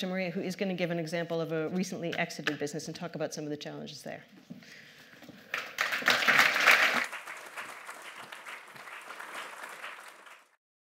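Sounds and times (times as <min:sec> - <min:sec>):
audience applauding: 0:05.5 - 0:10.6.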